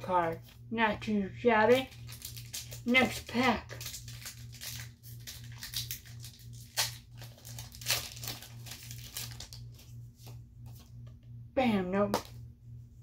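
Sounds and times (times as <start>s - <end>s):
foil wrapper tearing and crinkling: 1.7s - 9.8s.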